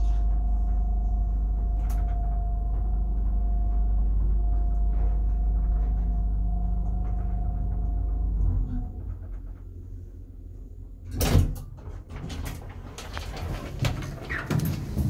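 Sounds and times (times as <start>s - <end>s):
faint steady whine: 0.0s - 11.1s
elevator car humming: 0.0s - 15.0s
sliding doors clattering open: 11.1s - 15.0s.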